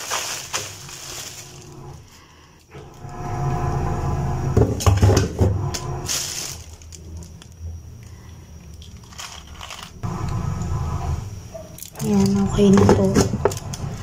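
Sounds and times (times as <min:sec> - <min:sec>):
plastic bag rustling and crinkling: 0:00.0 - 0:02.4, 0:06.0 - 0:07.6, 0:08.8 - 0:10.0
low hum: 0:00.8 - 0:08.8, 0:09.8 - 0:14.0.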